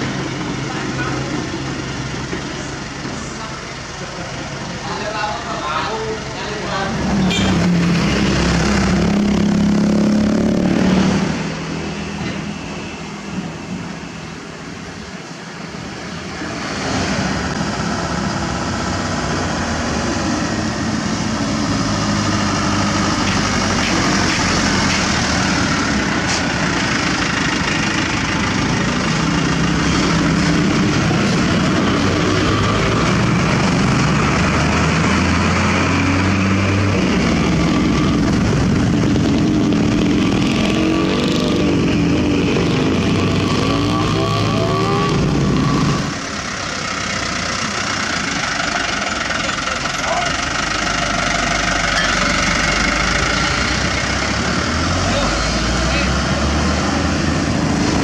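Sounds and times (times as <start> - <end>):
truck engine running: 17.5 - 56.3.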